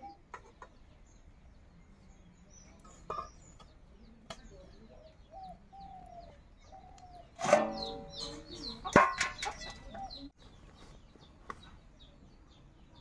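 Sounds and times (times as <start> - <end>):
chickens clucking: 0.0 - 1.0, 2.6 - 10.9
small birds chirping: 0.0 - 13.0
steel plate clanging on ground: 3.0 - 3.5, 7.4 - 10.0.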